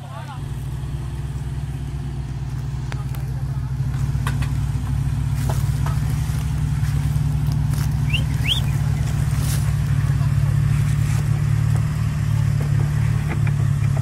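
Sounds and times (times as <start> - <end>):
car engine running at low revs: 0.0 - 14.0
faint high chirps: 8.0 - 8.8.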